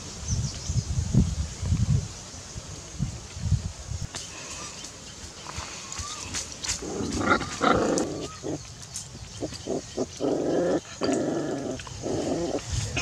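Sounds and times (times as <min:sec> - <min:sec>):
puppies calling: 0:05.9 - 0:12.7.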